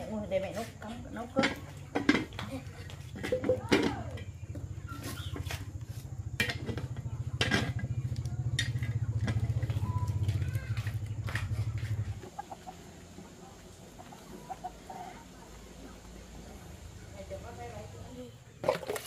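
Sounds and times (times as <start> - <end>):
small engine idling: 4.2 - 18.3.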